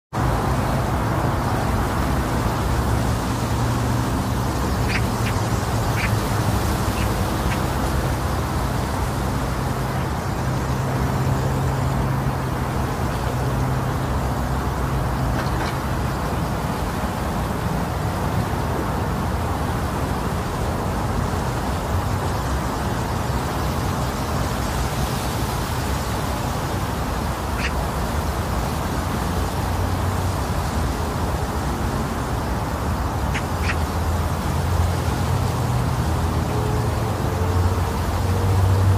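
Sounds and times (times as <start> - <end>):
wind blowing: 0.2 - 19.9.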